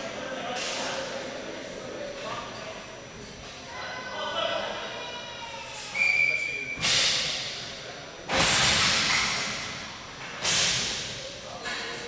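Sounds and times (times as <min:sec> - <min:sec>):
referee's whistle: 0:05.9 - 0:06.9.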